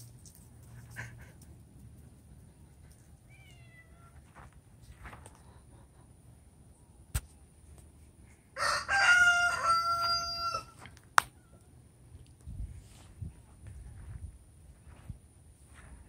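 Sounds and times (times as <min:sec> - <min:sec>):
rooster crowing: 0:08.6 - 0:10.8.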